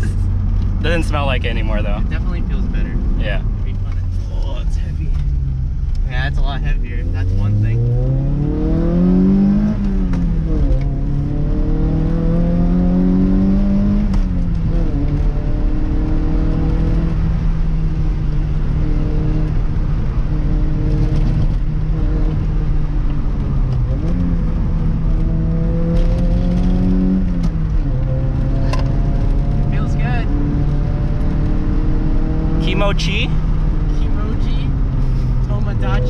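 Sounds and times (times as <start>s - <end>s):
car engine revving: 0.0s - 36.0s.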